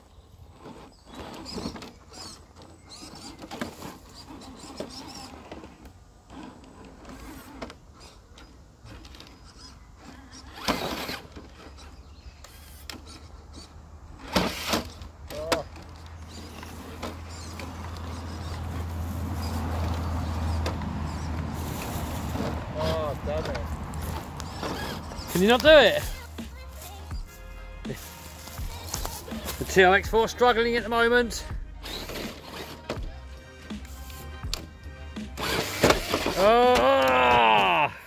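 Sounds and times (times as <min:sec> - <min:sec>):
small electric motor whining: 0:00.5 - 0:27.4, 0:31.8 - 0:33.0, 0:35.3 - 0:37.2.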